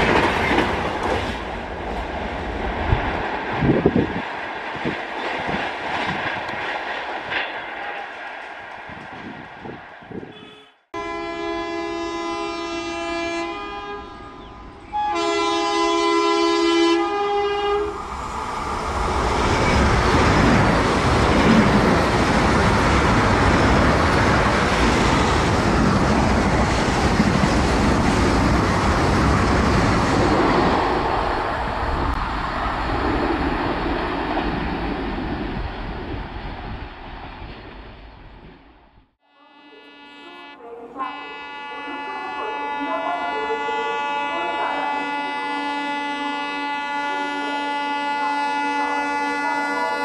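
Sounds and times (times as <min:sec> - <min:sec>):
train rushing past: 0:00.0 - 0:10.3, 0:14.0 - 0:38.9
two-tone train horn: 0:10.2 - 0:18.0, 0:39.2 - 0:50.0.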